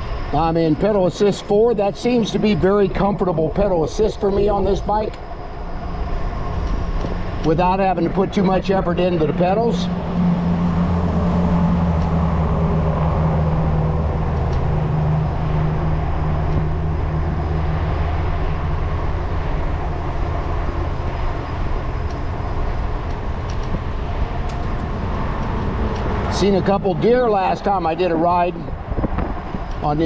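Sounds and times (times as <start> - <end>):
low even motor hum: 0.0 - 30.0
wind rush: 3.7 - 30.0.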